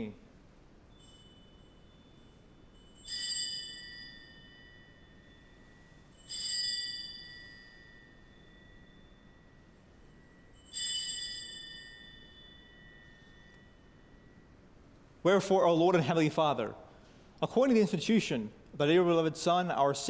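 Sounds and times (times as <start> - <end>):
altar bells ringing: 0.9 - 16.3.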